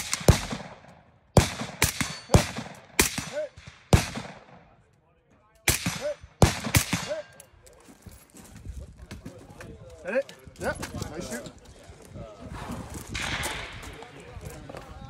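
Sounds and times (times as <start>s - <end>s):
rifle gunshots: 0.0s - 4.7s, 5.7s - 7.3s.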